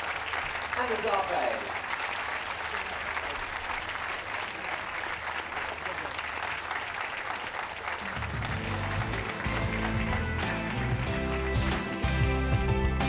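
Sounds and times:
audience applauding: 0:00.0 - 0:13.0
music: 0:08.4 - 0:13.0.

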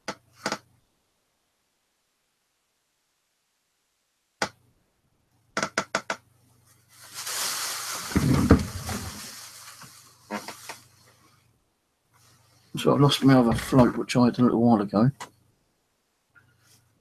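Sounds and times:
plastic sheet rustling: 0:06.8 - 0:11.4
heavy bump: 0:08.0 - 0:09.3, 0:13.2 - 0:14.0.

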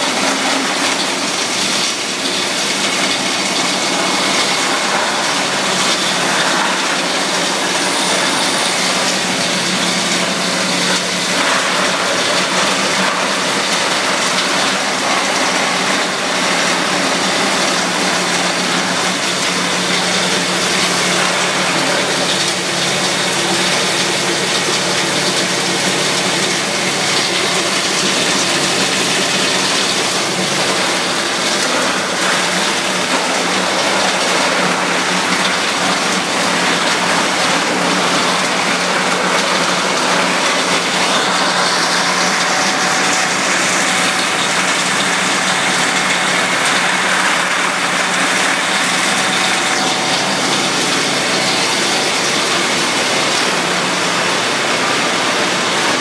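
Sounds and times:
plastic granulator grinding: 0:00.0 - 0:56.0.

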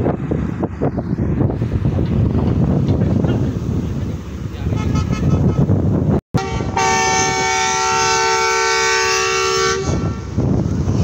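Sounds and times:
wind noise on microphone: 0:00.0 - 0:11.0
locomotive air horn chord: 0:04.7 - 0:05.8, 0:06.4 - 0:10.4.

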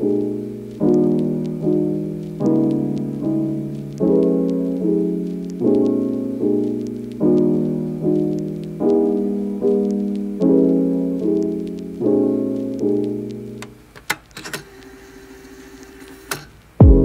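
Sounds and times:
piano chords ringing out: 0:00.0 - 0:13.7.

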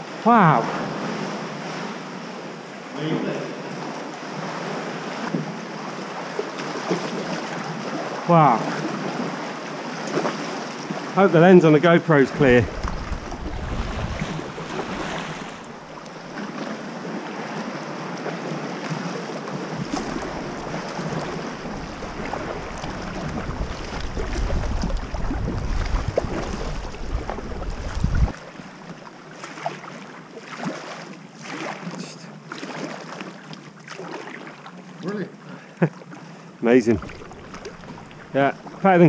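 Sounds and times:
water sloshing around kayak: 0:00.0 - 0:39.0
paddle strokes splashing: 0:00.6 - 0:39.0
wind rumble on microphone: 0:12.3 - 0:17.2, 0:19.7 - 0:28.4, 0:36.9 - 0:38.6.

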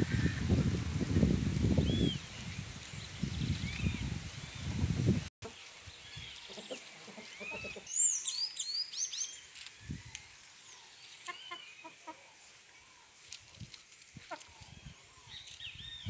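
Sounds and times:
songbirds chirping and singing: 0:01.8 - 0:16.0
chicken clucking: 0:06.5 - 0:07.9, 0:14.3 - 0:14.6.

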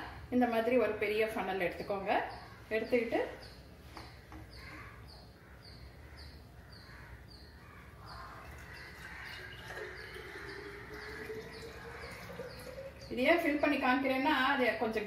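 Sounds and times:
liquid trickling into a bottle: 0:08.1 - 0:13.7.

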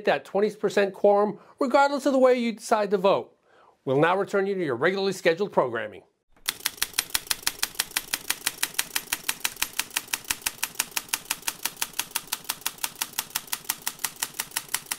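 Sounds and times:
rapid even clicking: 0:06.4 - 0:14.9.

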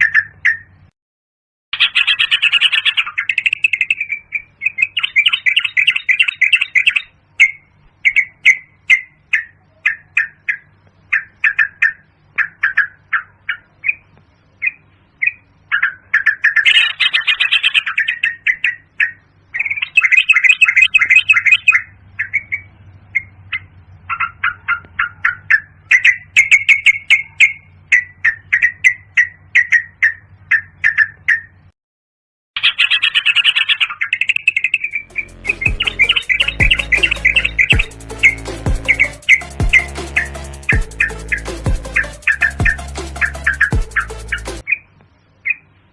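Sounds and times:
bird chirping and chattering: 0:00.0 - 0:00.8, 0:01.8 - 0:31.7, 0:32.6 - 0:45.7
low steady hum: 0:01.8 - 0:30.8, 0:34.6 - 0:45.9.

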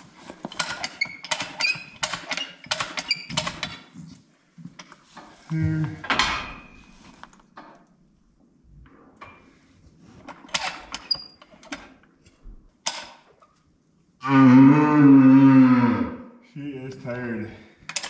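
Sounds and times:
metal clanks and clicks: 0:00.4 - 0:03.9.

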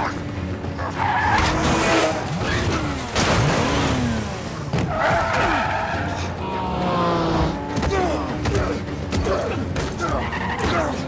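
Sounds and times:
tyres screeching: 0:00.6 - 0:03.0, 0:04.7 - 0:11.0.

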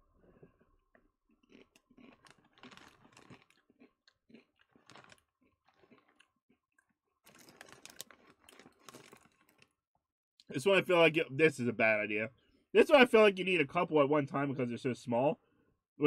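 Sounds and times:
chip bag crinkling: 0:01.4 - 0:09.7.

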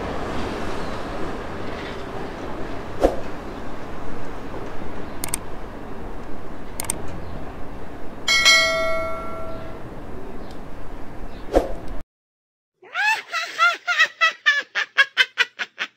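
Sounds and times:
steady background noise: 0:00.0 - 0:12.0
notification bell chime: 0:08.3 - 0:09.8.

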